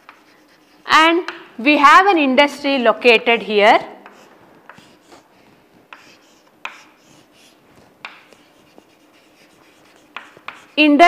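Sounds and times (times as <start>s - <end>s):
chalk scratching on chalkboard: 0.0s - 1.4s, 4.0s - 11.0s
chalk tapping on board: 0.0s - 1.5s, 4.0s - 5.2s, 5.8s - 10.8s.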